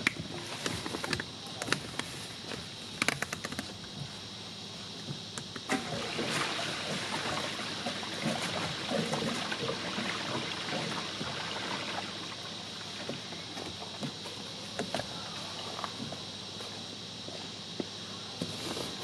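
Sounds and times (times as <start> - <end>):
water gurgling through hose: 5.7 - 13.0.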